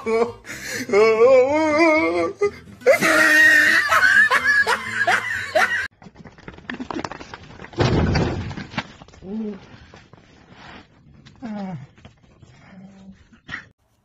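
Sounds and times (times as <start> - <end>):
person laughing: 0.0 - 5.9.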